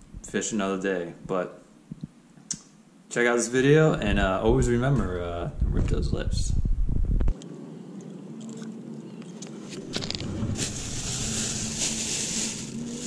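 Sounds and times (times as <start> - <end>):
steady rushing hiss: 9.6 - 13.0.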